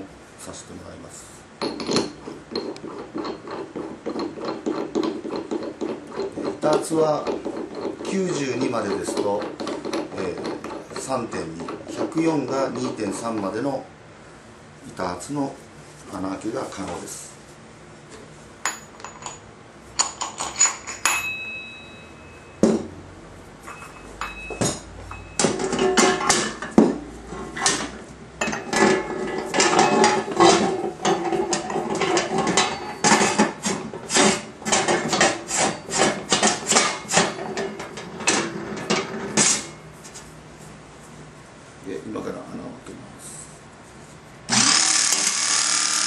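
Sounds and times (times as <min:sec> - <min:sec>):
hydraulic pump pulsing: 0:44.5 - 0:46.0.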